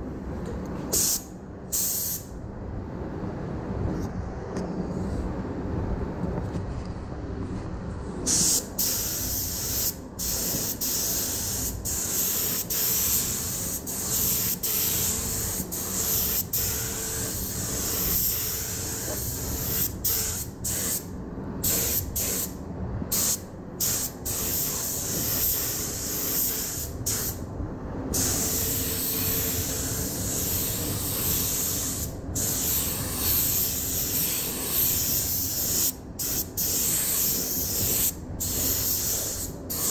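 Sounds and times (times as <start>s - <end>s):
paint spray gun hissing: 8.3s - 21.0s, 23.1s - 27.4s, 28.2s - 39.9s.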